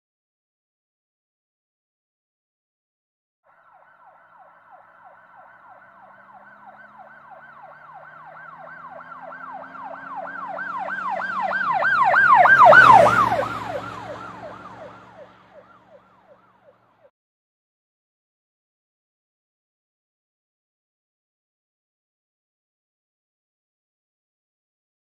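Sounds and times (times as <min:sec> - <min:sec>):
siren yelping: 0:03.5 - 0:16.9
vehicle engine: 0:04.3 - 0:17.0.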